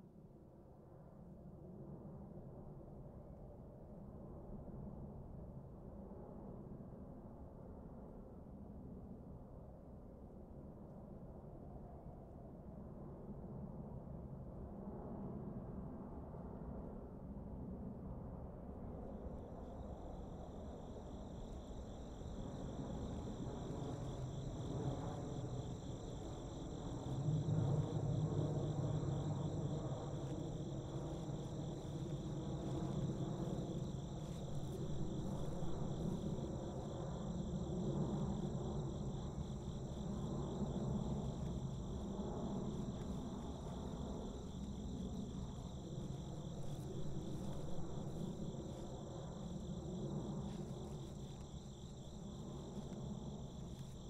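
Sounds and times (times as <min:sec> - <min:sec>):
crickets chirping: 0:19.0 - 0:54.0.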